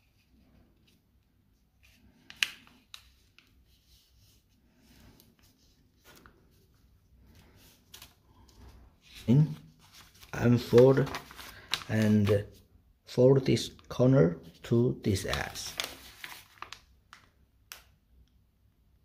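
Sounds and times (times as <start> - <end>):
paper rustling and sliding: 1.8 - 12.6, 15.2 - 17.2.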